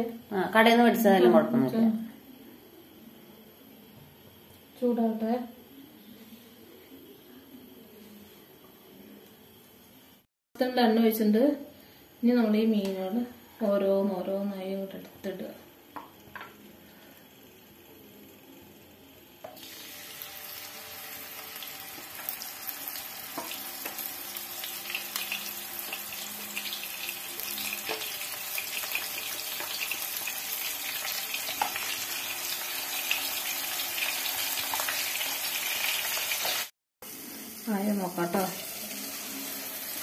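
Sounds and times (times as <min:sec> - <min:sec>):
fish frying in hot oil: 0:19.6 - 0:40.0.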